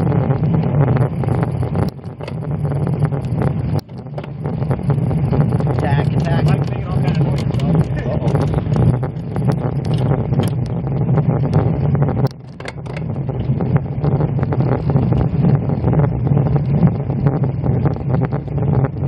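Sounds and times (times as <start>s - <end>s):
tyre road and wind rumble: 0.0s - 19.0s
bicycle clicks and rattles: 1.2s - 10.8s, 12.2s - 13.2s.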